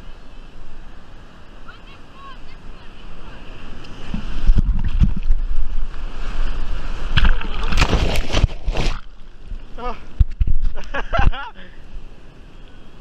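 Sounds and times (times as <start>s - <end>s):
surf and whitewater rushing: 0.0s - 13.0s
wind on microphone: 2.6s - 11.4s
water thuds and splashes: 4.0s - 5.7s, 7.0s - 9.2s.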